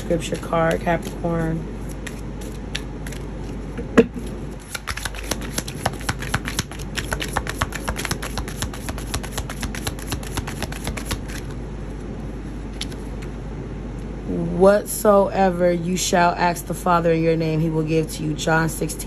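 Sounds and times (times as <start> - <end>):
playing cards being shuffled: 0.2 - 3.6, 4.2 - 11.6.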